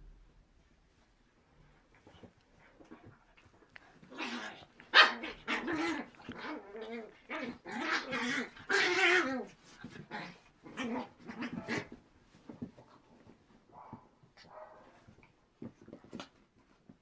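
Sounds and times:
puppies growling and yipping: 4.0s - 12.0s.

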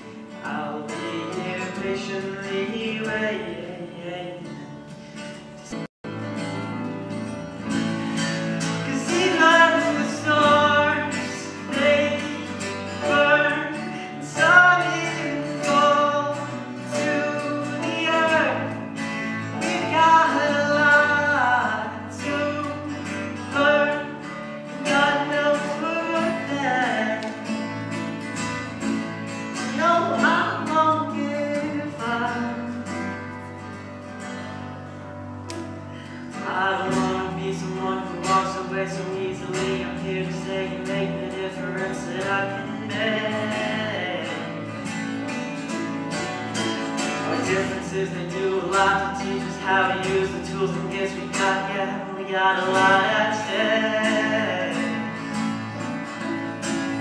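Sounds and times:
young man singing a ballad: 0.0s - 4.9s, 8.7s - 27.6s, 29.6s - 33.3s, 36.3s - 44.8s, 47.1s - 55.4s
acoustic guitar strummed and picked: 0.0s - 57.0s.

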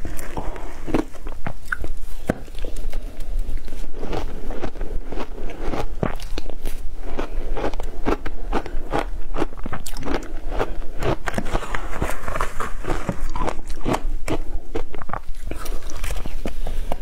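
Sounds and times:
crunching frozen ice with teeth: 0.0s - 16.4s.

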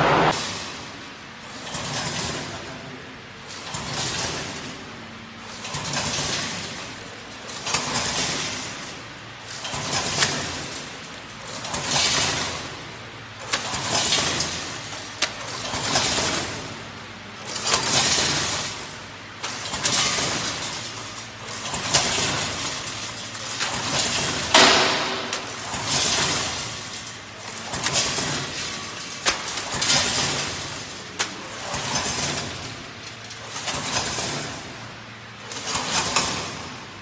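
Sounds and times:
packing machine clicks: 13.4s - 16.8s, 17.4s - 34.8s.

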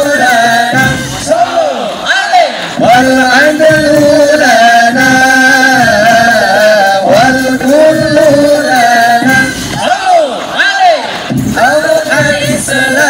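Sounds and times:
person singing ornamented notes: 2.8s - 9.8s.

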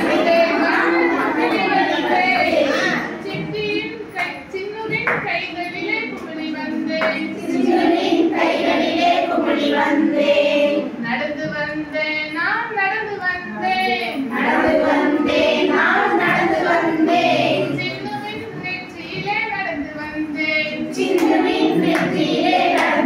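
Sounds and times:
women singing together: 0.0s - 23.0s.

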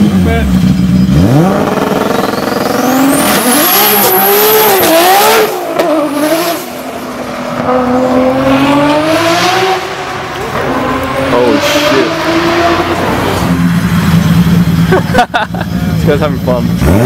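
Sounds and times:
car engine accelerating hard: 0.0s - 17.0s.

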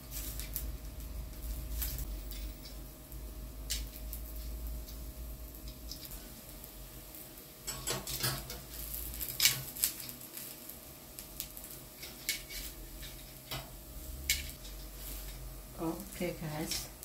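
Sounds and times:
tongs scraping grill: 1.4s - 2.9s, 7.6s - 17.0s
metal tongs clicking on grill plate: 7.7s - 8.6s, 9.2s - 10.2s, 11.5s - 15.4s, 16.6s - 17.0s.

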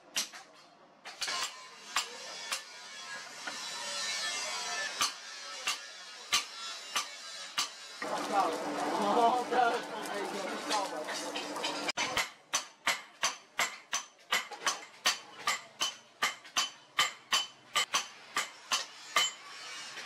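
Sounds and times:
hammer striking metal on anvil: 4.9s - 7.8s, 11.3s - 19.6s.

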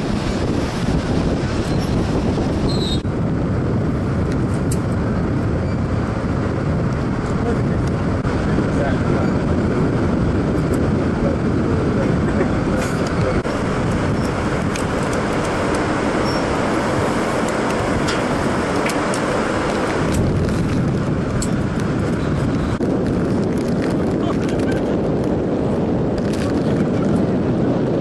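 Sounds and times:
loud rushing noise: 0.0s - 4.3s.

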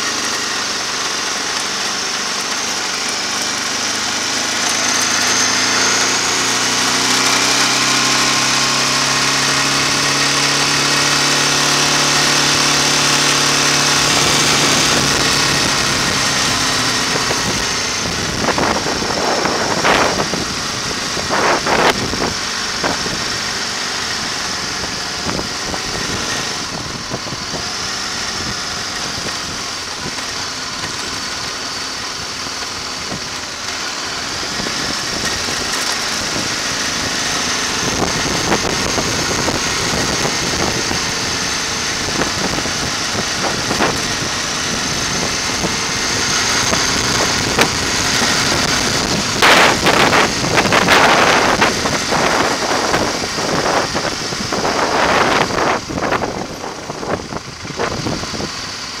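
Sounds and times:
tyres on road: 0.0s - 59.0s
vehicle engine running: 0.0s - 59.0s.

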